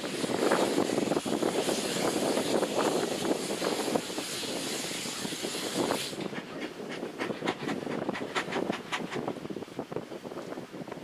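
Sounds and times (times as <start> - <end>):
steam locomotive blowing off steam: 0.0 - 9.5.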